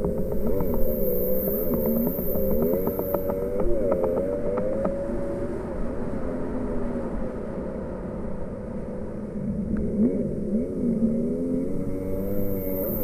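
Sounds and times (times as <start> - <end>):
jet ski engine running: 0.0 - 5.1.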